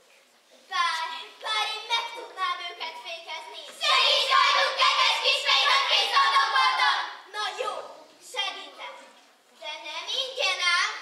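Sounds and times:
group of children voicing together: 3.7 - 8.0
children calling out: 3.8 - 8.8.

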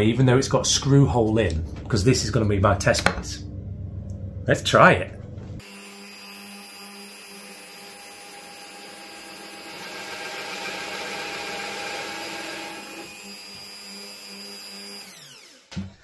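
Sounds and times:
drill press boring into wood: 5.6 - 16.0.

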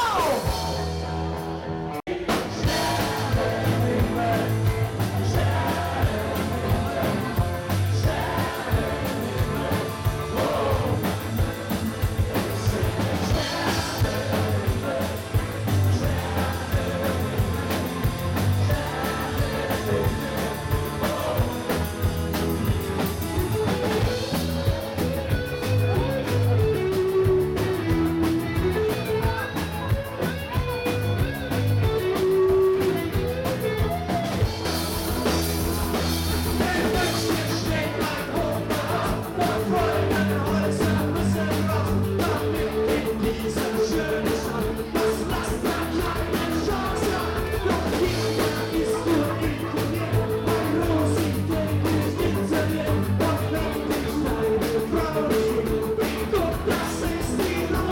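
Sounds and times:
person singing lead vocal: 0.0 - 1.1, 1.9 - 22.5, 36.5 - 57.9
drum kit beat: 0.0 - 1.5, 2.1 - 57.9
electric guitars: 0.0 - 57.9.

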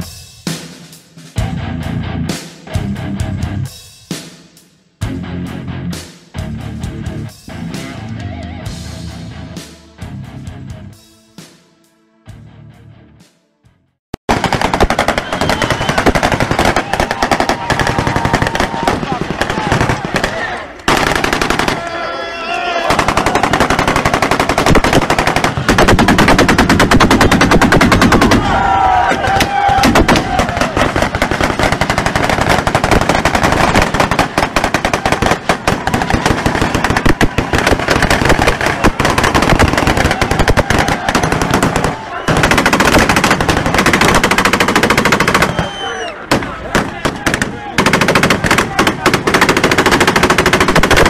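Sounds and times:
automatic gunfire bursts: 14.3 - 22.0, 22.8 - 28.6, 29.7 - 51.0.

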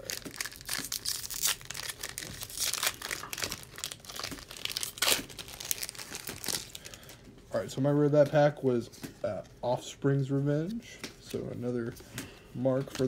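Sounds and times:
foil wrappers crinkling and tearing: 0.0 - 7.2.

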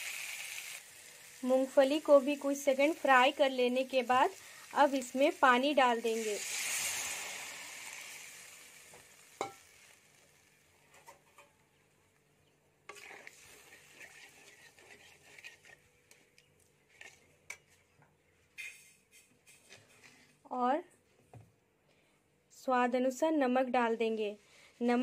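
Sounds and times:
water sizzling in hot pan: 0.0 - 10.7, 12.9 - 14.8
spoon stirring and scraping gravy: 12.9 - 18.0, 18.6 - 20.4.

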